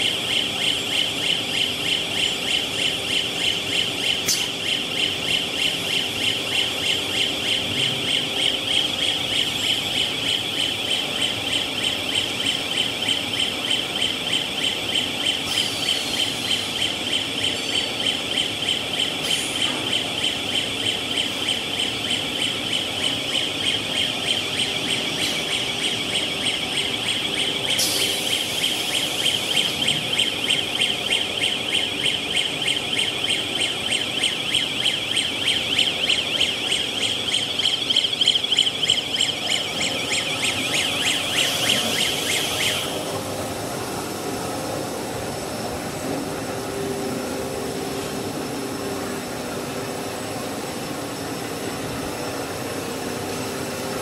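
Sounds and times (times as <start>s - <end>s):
electronic warning buzzer pulsing: 0.0s - 43.1s
industrial machine running: 0.0s - 54.0s.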